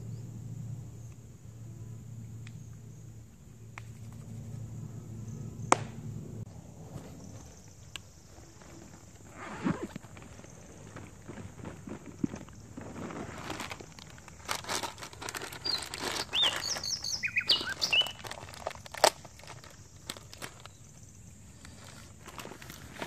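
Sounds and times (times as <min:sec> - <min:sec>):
snack packet crinkling: 0:12.9 - 0:20.8
bird chirps: 0:15.6 - 0:18.4.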